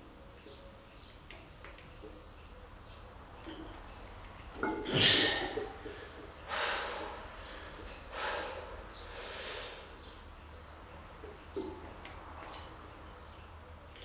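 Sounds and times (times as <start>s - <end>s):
man breathing heavily: 4.9s - 10.0s
forceful exhale: 8.1s - 9.9s.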